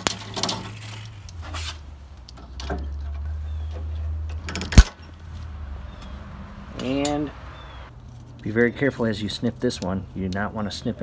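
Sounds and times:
low rumble: 5.0 - 8.0.

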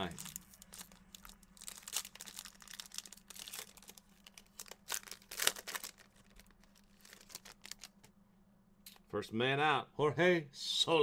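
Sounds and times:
plastic wrapping crinkling and tearing: 0.0 - 8.1.

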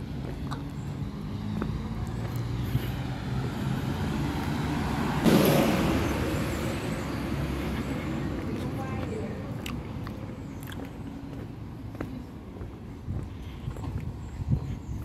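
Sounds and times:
sudden loud rush of noise: 4.9 - 7.5.

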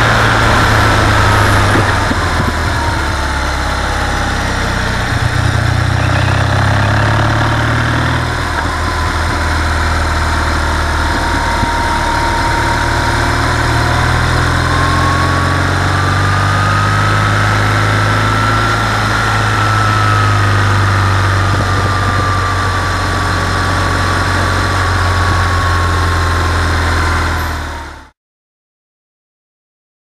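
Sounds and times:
motorcycle engine running: 0.0 - 10.8
wind and road noise: 0.0 - 12.4, 13.0 - 27.6
thin high whine: 0.1 - 4.0.

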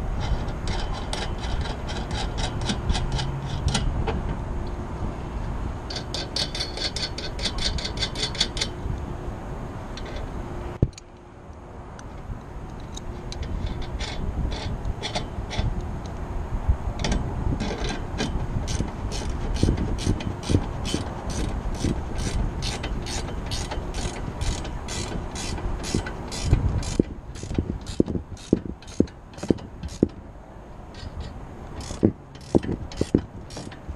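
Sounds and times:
ratchet wrench clicking: 0.2 - 3.9, 5.9 - 8.7, 17.0 - 30.2, 30.9 - 33.9.

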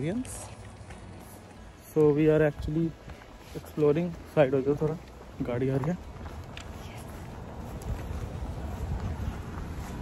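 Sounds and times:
wind buffeting microphone: 5.4 - 10.0.

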